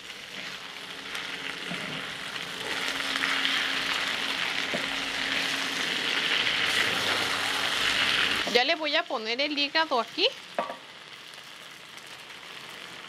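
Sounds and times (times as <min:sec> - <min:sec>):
onions sizzling in hot oil: 0:00.0 - 0:13.0
wooden spatula stirring: 0:00.3 - 0:00.9.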